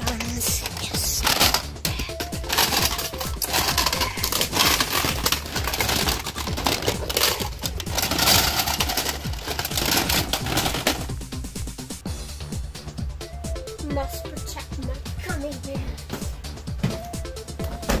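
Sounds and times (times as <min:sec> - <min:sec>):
plastic toys clattering: 0:00.0 - 0:11.3.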